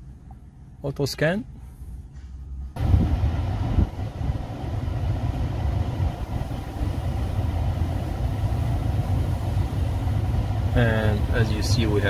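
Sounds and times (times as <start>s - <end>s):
car engine idling: 2.8s - 12.0s.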